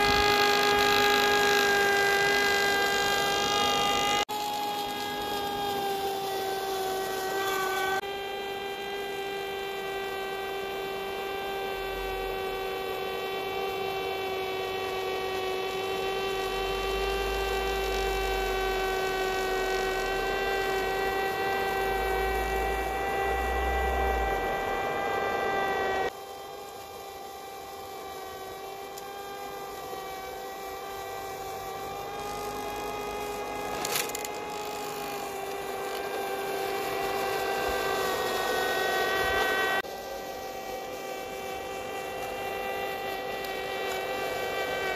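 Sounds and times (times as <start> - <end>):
electric motor whine: 0.0 - 44.9.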